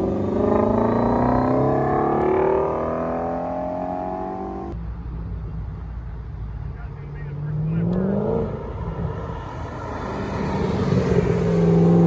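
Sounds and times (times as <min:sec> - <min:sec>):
car engine accelerating: 0:00.0 - 0:12.0
low engine rumble: 0:04.5 - 0:12.0.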